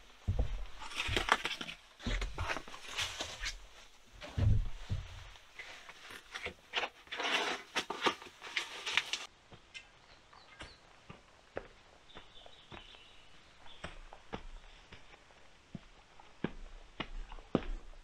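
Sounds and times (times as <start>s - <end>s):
footsteps in dry leaf litter: 7.2s - 9.3s.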